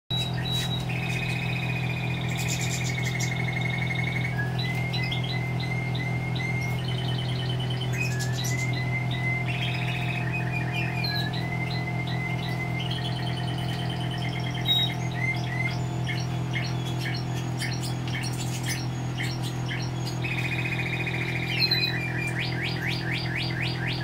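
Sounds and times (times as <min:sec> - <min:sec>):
songbirds trilling and chirping: 0:00.1 - 0:24.0
steady low hum: 0:00.1 - 0:24.0.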